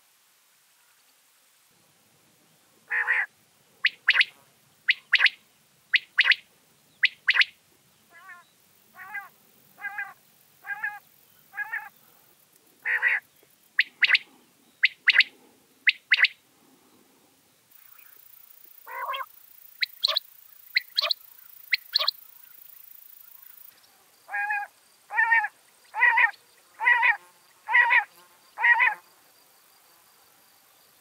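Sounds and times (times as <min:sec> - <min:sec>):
quail whistled song: 0:03.8 - 0:04.3, 0:04.9 - 0:06.4, 0:07.0 - 0:07.6, 0:13.8 - 0:14.2, 0:14.8 - 0:15.3, 0:15.9 - 0:16.4, 0:18.8 - 0:22.3.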